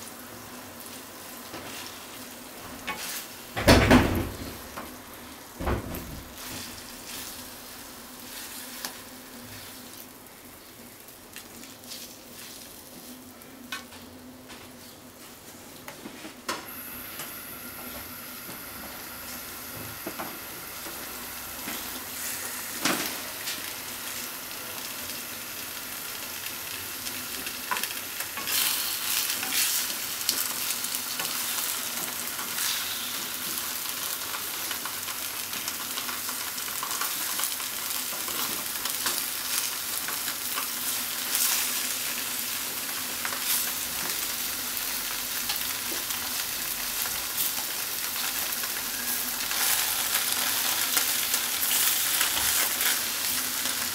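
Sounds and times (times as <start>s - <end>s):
tofu sizzling in a frying pan: 0.0s - 3.6s, 4.3s - 13.4s, 16.7s - 53.9s.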